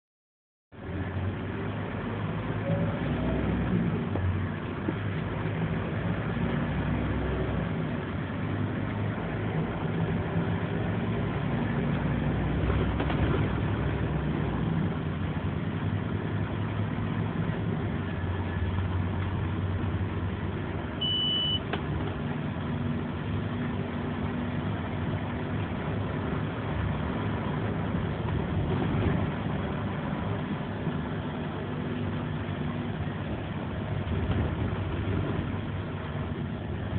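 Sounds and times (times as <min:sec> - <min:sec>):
bus diesel engine: 0:00.7 - 0:36.9
road noise: 0:00.7 - 0:36.9
short high beep: 0:21.0 - 0:21.6.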